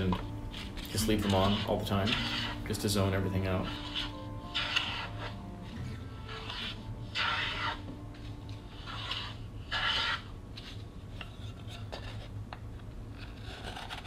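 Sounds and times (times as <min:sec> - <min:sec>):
hand tool scraping wood: 0:00.0 - 0:05.4, 0:06.3 - 0:07.8, 0:08.7 - 0:10.7.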